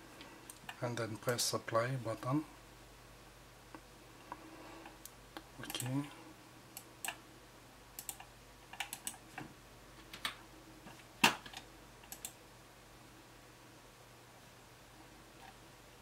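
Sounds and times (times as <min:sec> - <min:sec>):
computer mouse clicks: 0:04.8 - 0:06.0, 0:08.0 - 0:09.2, 0:11.5 - 0:12.4.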